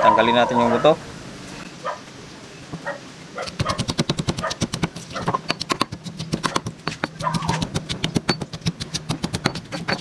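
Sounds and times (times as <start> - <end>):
pestle pounding in stone mortar: 3.4 - 10.0.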